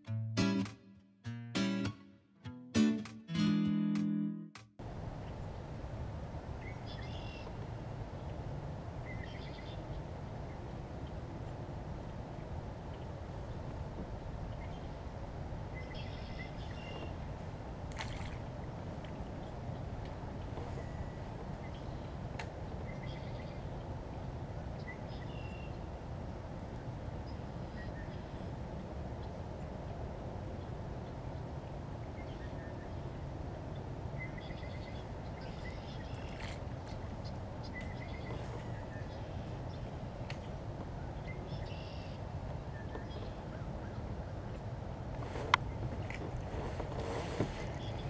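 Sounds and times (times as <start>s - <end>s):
wind rumble on microphone: 4.8s - 48.0s
bird chirps: 6.6s - 7.6s, 9.1s - 10.0s, 15.8s - 17.2s, 41.2s - 43.4s
songbird calling: 6.6s - 7.6s, 9.0s - 11.2s, 15.7s - 17.2s, 20.6s - 22.2s, 22.8s - 23.9s, 24.8s - 25.9s, 27.2s - 28.6s, 32.1s - 33.1s, 34.1s - 39.9s, 41.0s - 44.4s, 47.6s - 48.0s.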